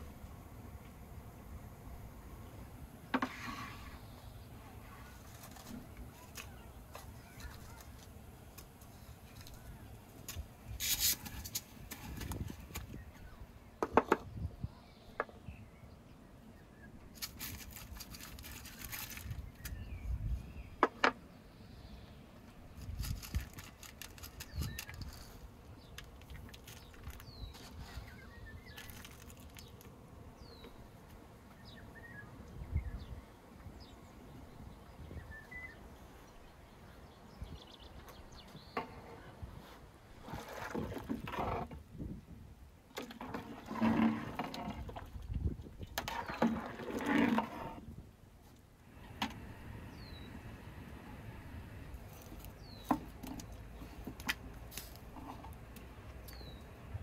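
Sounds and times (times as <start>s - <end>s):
low rumble of wind: 0.0s - 57.0s
small birds chirping: 3.8s - 39.4s, 49.8s - 57.0s.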